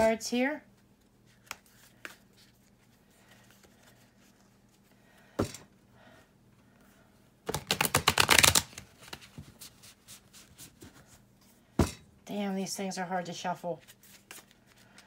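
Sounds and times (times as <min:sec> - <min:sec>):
cards flicking in a shuffle: 0:07.5 - 0:10.7.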